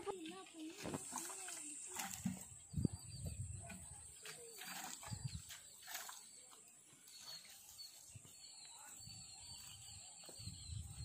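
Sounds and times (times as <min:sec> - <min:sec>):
faint bird chirps: 0:02.5 - 0:11.0.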